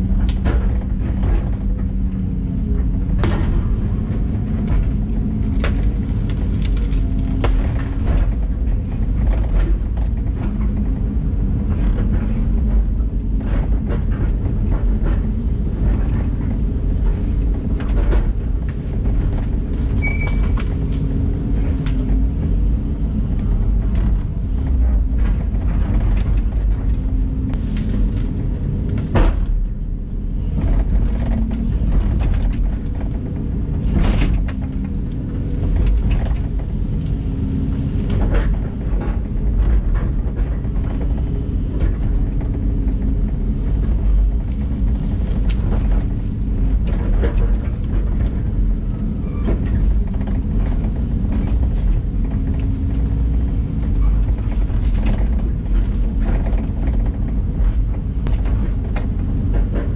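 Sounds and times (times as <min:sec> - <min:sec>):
excavator diesel engine running: 0:00.0 - 0:59.9
sharp knocks and cracks: 0:03.1 - 0:10.9.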